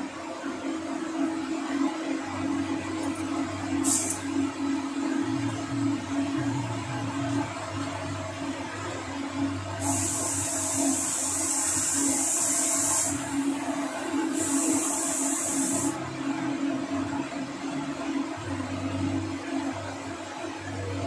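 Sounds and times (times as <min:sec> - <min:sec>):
spray gun hissing: 0:03.8 - 0:04.2, 0:09.8 - 0:13.2, 0:14.3 - 0:16.0.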